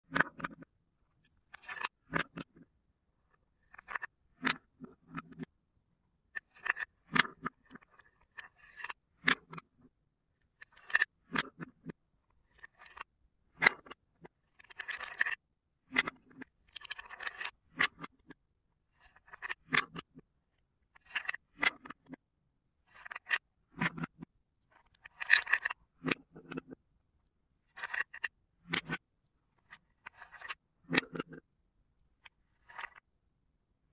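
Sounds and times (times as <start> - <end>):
wooden balls clicking in cups: 22.9 - 26.8.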